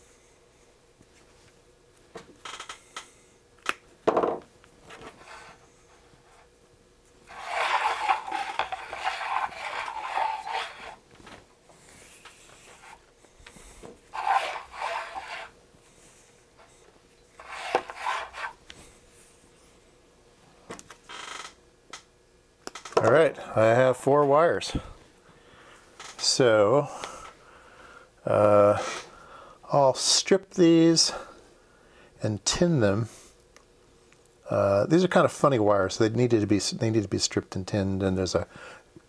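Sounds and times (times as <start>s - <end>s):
wire rubbing and scraping: 7.3s - 11.0s, 12.2s - 13.0s, 14.1s - 15.6s, 17.4s - 18.8s.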